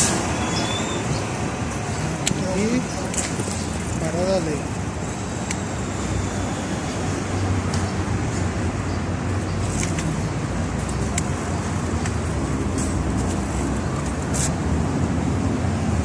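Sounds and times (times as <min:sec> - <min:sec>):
cars passing: 0:00.0 - 0:16.0
high clicks: 0:10.8 - 0:12.2.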